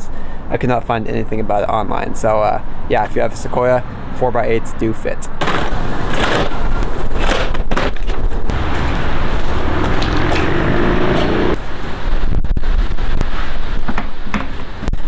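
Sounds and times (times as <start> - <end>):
wooden knocks and clatter: 13.8 - 14.6.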